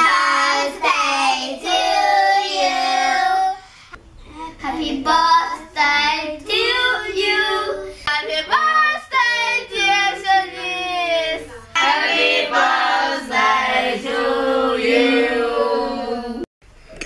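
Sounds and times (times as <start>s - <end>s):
children singing: 0.0s - 3.6s, 8.4s - 16.5s.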